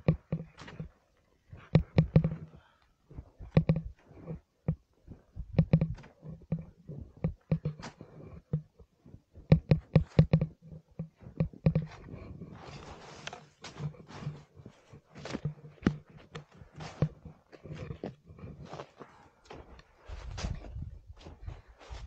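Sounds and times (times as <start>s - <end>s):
low grunt-like hum: 9.5s - 21.3s
ice axes and boots striking snow: 11.9s - 17.9s.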